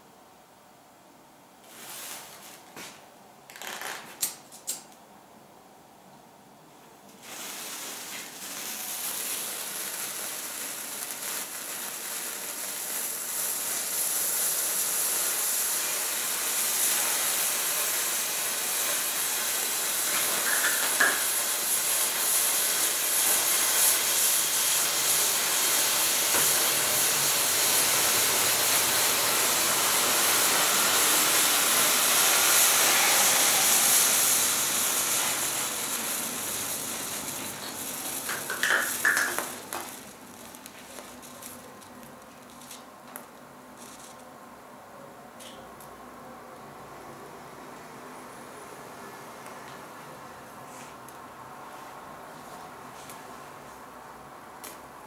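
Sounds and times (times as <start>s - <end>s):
gunpowder burning with a hiss: 1.6s - 3.0s, 7.1s - 44.2s.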